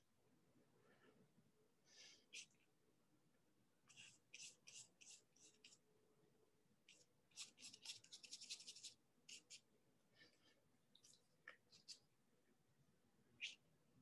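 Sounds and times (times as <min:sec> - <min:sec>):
paintbrush stroking paper: 0:03.9 - 0:05.8, 0:06.9 - 0:09.6, 0:11.0 - 0:12.1.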